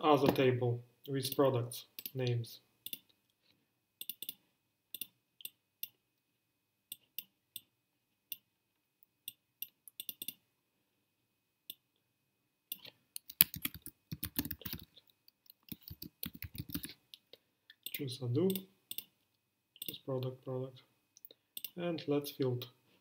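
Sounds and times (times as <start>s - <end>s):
computer mouse clicks: 2.0s - 3.2s, 4.0s - 6.0s, 9.3s - 10.4s, 12.7s - 17.0s, 17.8s - 19.1s, 21.6s - 21.8s
fast keyboard typing: 13.2s - 14.9s, 15.5s - 16.9s.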